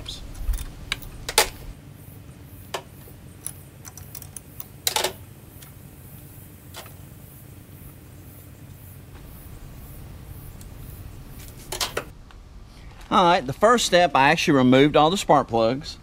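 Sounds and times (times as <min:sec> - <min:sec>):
metallic clicks of wrench and plugs: 0:03.4 - 0:05.7.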